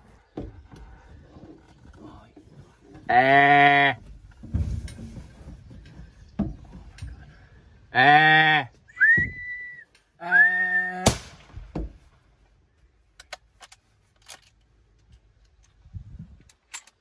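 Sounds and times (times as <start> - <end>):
person whistling: 8.9 - 10.9
man shouting: 10.2 - 11.2
rifle shot: 11.0 - 11.8.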